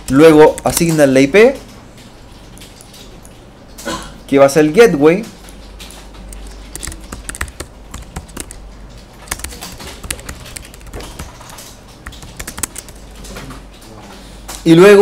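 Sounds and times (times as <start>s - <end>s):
steady low hum: 5.4s - 14.6s
keyboard key clicks: 6.3s - 8.6s, 9.2s - 13.0s.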